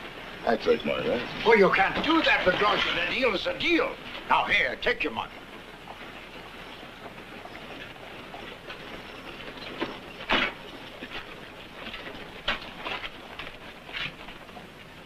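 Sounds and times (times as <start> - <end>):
steady hiss: 0.0 - 15.0
irregular knocks and thumps: 5.3 - 15.0.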